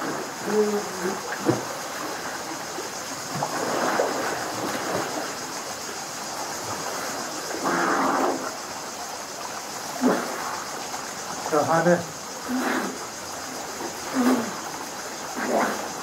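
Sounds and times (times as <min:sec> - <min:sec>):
steady hiss of water: 0:00.0 - 0:16.0
swimmers splashing: 0:09.9 - 0:10.7, 0:13.9 - 0:16.0.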